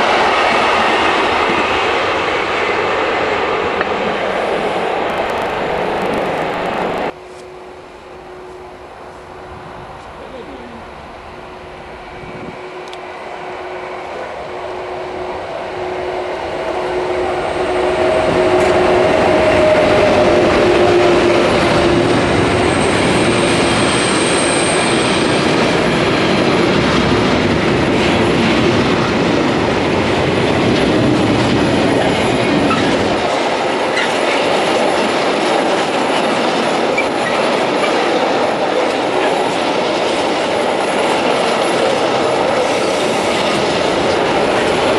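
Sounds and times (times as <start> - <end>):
electric locomotive hum: 0.0 - 44.9
wheels clattering on rails: 17.9 - 44.9.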